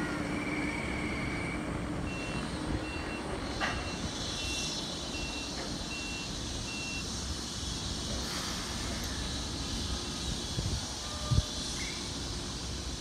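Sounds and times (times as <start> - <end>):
rail vehicle rumble: 0.0 - 13.0
electronic warning beeps: 1.3 - 7.1.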